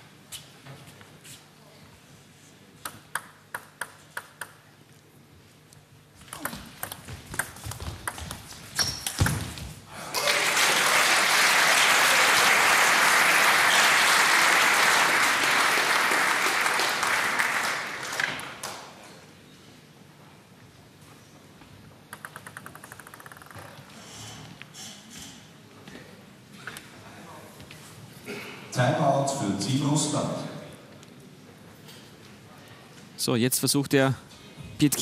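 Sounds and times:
table tennis ball hits: 2.8s - 4.6s, 6.2s - 9.6s
crowd applause: 10.0s - 18.9s.

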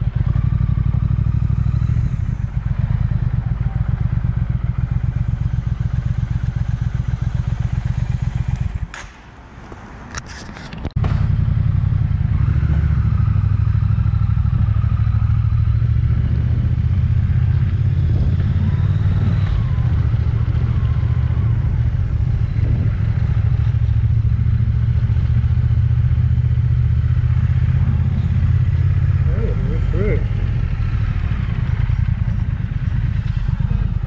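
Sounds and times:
motorcycle engine running: 0.0s - 8.9s, 11.0s - 34.0s.

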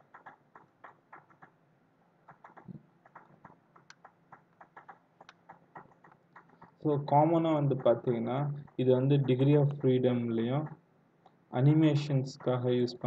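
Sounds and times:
keyboard and mouse clicking: 0.0s - 1.5s, 2.3s - 10.8s.

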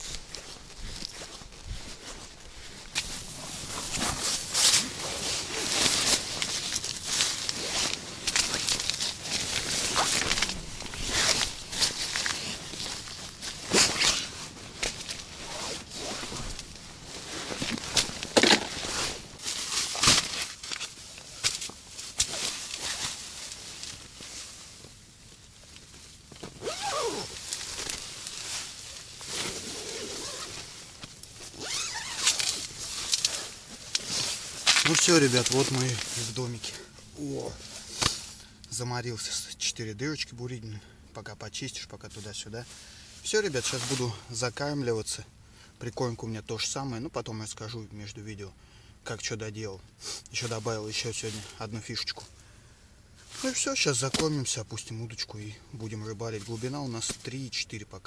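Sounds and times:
fabric rustling and scuffing: 0.0s - 21.1s
rustling on tent fabric: 0.0s - 40.5s, 41.7s - 44.9s, 50.0s - 52.4s, 53.2s - 57.6s.

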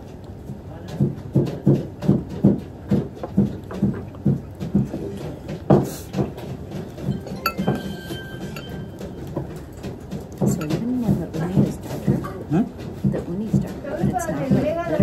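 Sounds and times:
utensils clinking on porcelain: 7.0s - 11.0s.

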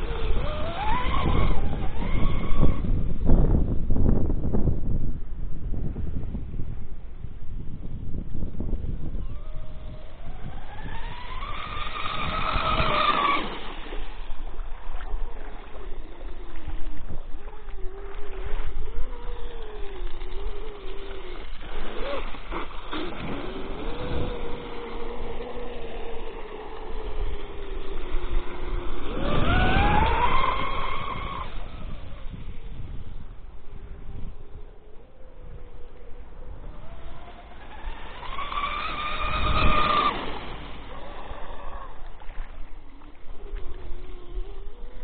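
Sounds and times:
electric motor high-pitched whine: 9.3s - 14.5s, 34.1s - 41.9s.

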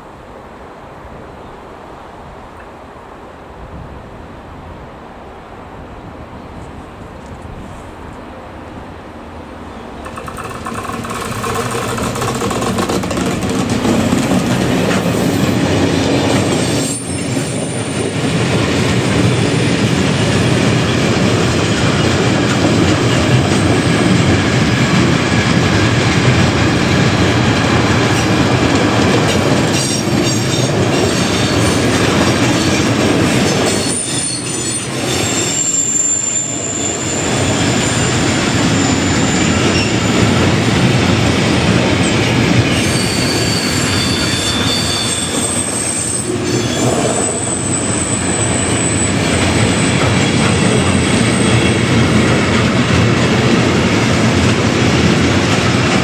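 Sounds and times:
freight train passing: 0.0s - 56.0s
high wheel squeals: 10.0s - 13.2s, 16.6s - 18.0s, 33.7s - 40.4s, 42.7s - 50.0s
wheels clickety-clack on rails: 10.0s - 35.6s, 36.4s - 56.0s.

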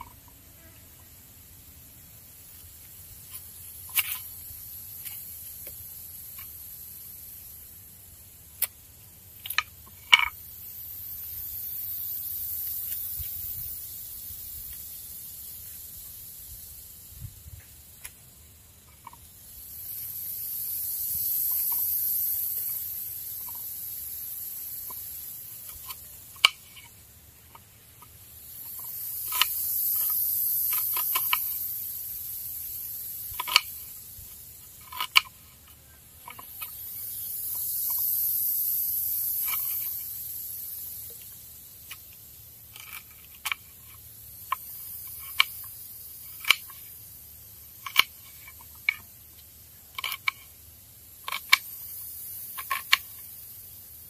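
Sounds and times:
high hiss: 0.0s - 54.0s
blade clicking against board: 33.3s - 33.8s, 46.4s - 46.8s.

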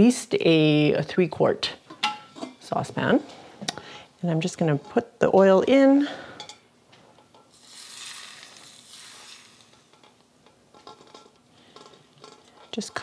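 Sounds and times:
hot oil sizzling: 7.4s - 10.2s.

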